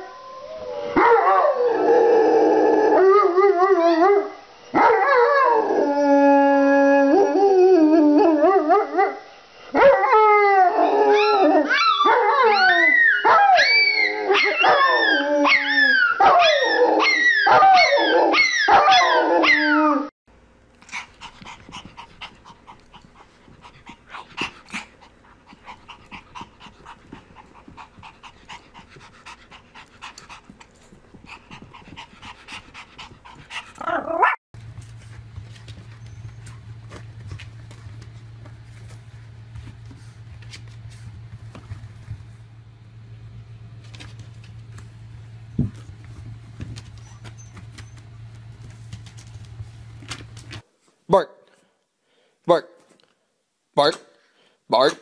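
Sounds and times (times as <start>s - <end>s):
dogs howling: 0.0s - 9.2s, 9.8s - 20.1s
faint scuffling: 34.6s - 42.6s, 43.7s - 50.6s.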